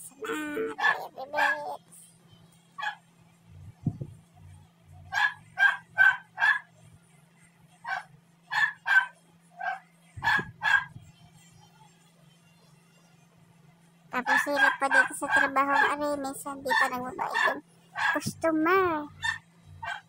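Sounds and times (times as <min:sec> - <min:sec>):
faint low hum: 0:00.0 - 0:20.0
dog barking: 0:00.6 - 0:01.8, 0:02.8 - 0:03.0, 0:05.1 - 0:06.7, 0:07.8 - 0:11.0, 0:14.2 - 0:16.1, 0:16.7 - 0:18.3, 0:19.2 - 0:20.0.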